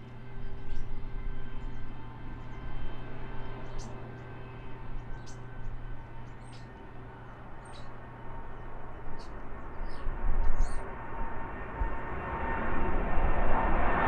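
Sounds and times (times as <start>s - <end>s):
small birds chirping: 0.0s - 8.0s, 8.9s - 10.9s
jet engines droning: 0.0s - 14.0s.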